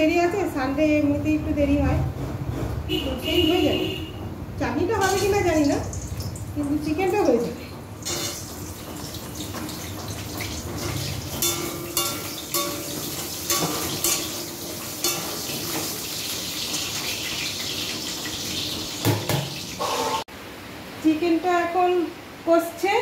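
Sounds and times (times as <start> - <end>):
metal ladle scraping pan: 8.0 - 8.6
chicken sizzling in hot oil: 8.0 - 20.2.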